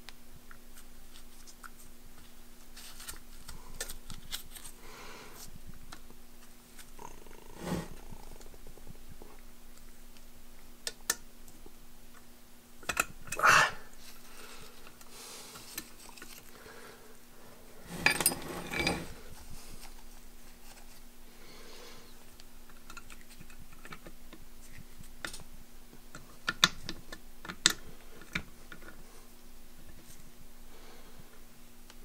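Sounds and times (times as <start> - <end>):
steady low hum: 0.0 - 22.8
metal parts clinking and scraping: 17.9 - 19.2.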